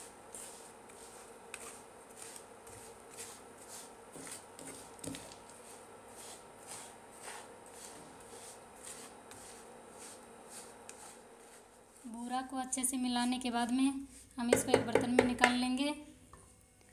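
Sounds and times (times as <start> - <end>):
wooden spatula scraping a pan: 0.0 - 12.3
spatula knock on pan: 14.5 - 15.6.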